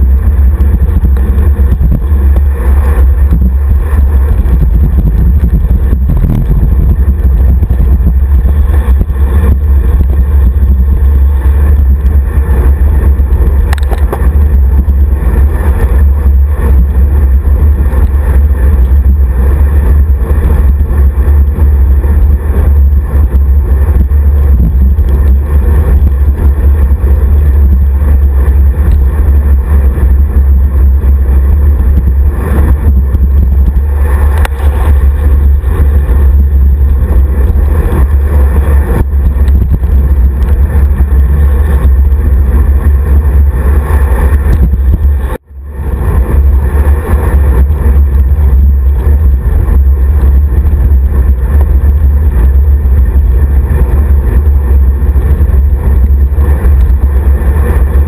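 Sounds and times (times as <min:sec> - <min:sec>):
wind rumble on microphone: 0:00.0 - 0:58.0.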